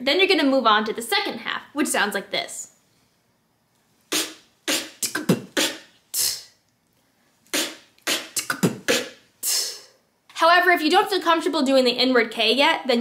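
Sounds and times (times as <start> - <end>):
beatboxing: 4.1 - 6.6, 7.4 - 10.0.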